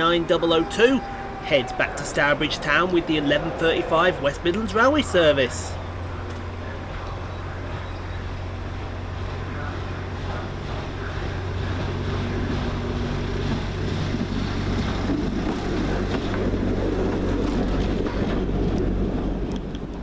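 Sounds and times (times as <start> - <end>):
railcar engine drone and rumble: 0.0 - 20.0.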